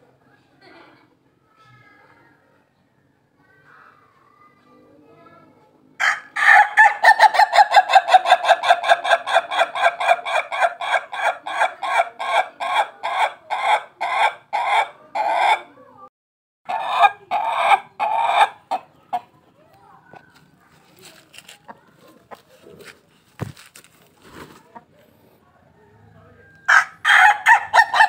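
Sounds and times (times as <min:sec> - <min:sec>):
rooster crowing with laughing notes: 0:06.0 - 0:11.6, 0:26.6 - 0:28.0.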